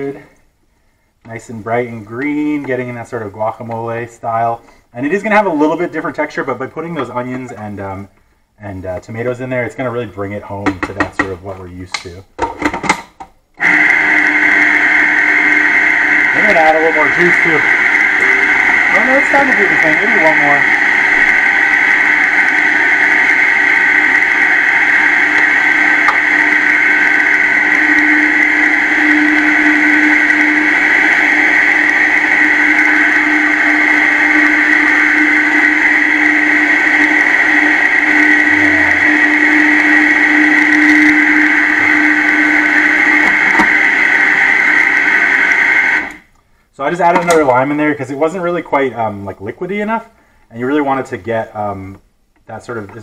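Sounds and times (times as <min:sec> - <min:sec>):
food processor motor whining: 0:13.6 - 0:46.3.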